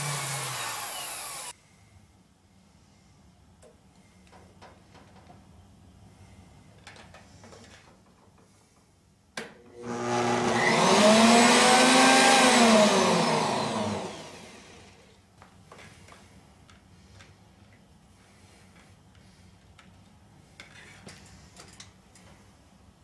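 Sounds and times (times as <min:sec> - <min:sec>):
wood chipper motor whirring: 0:00.0 - 0:01.5, 0:09.8 - 0:15.1.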